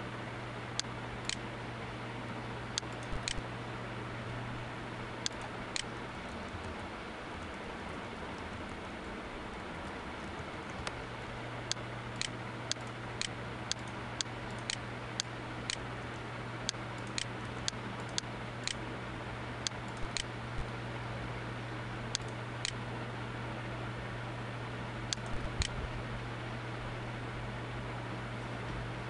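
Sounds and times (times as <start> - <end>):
steady low hum: 0.0 - 29.0
mouse and keyboard clicks: 2.8 - 3.4, 11.7 - 14.8, 16.7 - 18.8, 19.9 - 20.7, 25.1 - 25.8.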